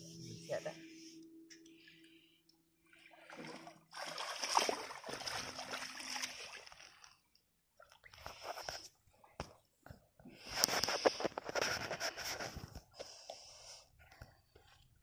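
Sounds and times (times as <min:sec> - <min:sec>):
seawater splashing around feet: 0:03.3 - 0:06.8.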